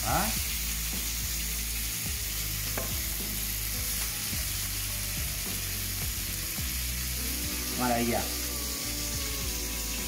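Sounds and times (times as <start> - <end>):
cuttlefish sizzling on a griddle: 0.0 - 10.0.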